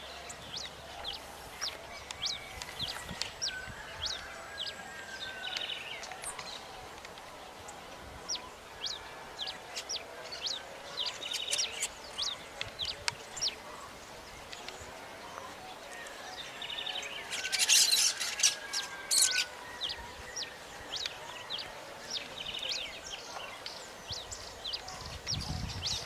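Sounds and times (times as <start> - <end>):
birds chirping: 0.0 - 26.0.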